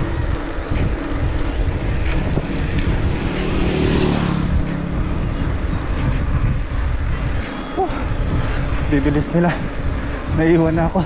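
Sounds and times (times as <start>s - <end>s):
vehicle engine humming past: 0.0s - 8.8s
wind rushing over microphone: 0.0s - 11.0s.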